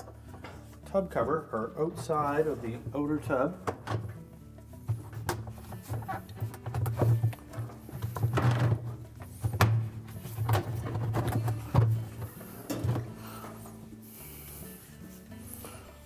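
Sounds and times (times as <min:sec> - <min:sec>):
plastic scraping on plastic: 0:04.8 - 0:13.2.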